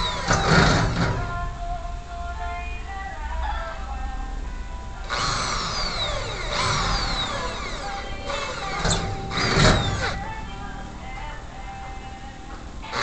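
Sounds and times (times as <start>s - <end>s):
power drill whine: 0.0s - 1.3s, 5.0s - 10.4s
background music: 0.0s - 13.0s.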